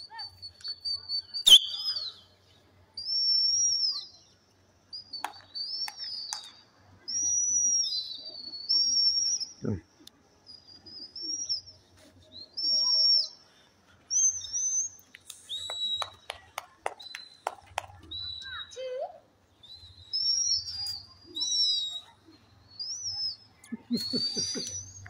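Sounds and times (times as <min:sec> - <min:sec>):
high gliding whistles: 0:00.1 - 0:02.4, 0:05.0 - 0:09.7, 0:10.5 - 0:16.3, 0:19.5 - 0:25.0.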